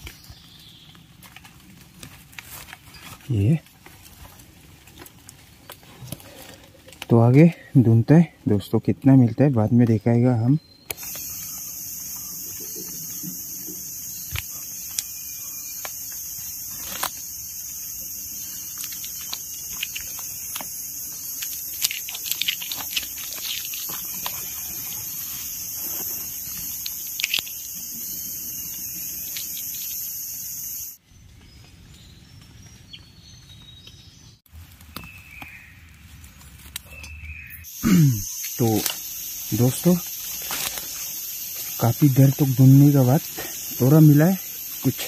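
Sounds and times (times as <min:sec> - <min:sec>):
rustles in leaf litter: 0:00.0 - 0:07.4, 0:11.0 - 0:30.0, 0:34.5 - 0:37.5, 0:38.3 - 0:45.0
high-pitched insect chorus: 0:10.2 - 0:31.0, 0:37.0 - 0:45.0.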